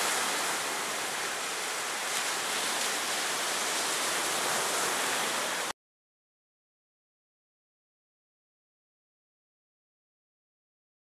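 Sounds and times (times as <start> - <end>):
waves breaking on beach: 0.0 - 5.7.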